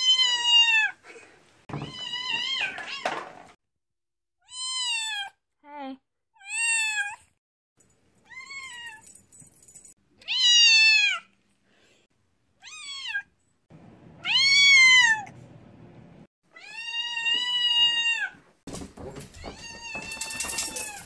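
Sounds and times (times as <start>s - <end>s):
cat meowing loudly: 0.0s - 1.0s, 4.4s - 5.4s, 10.2s - 11.3s, 12.6s - 13.3s, 14.2s - 15.3s, 16.5s - 18.4s.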